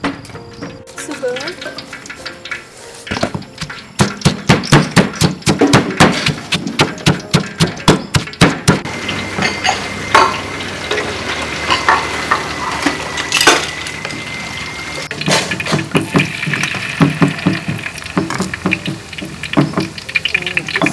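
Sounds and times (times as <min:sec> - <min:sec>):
pestle pounding in stone mortar: 0:03.1 - 0:08.9, 0:15.3 - 0:20.0.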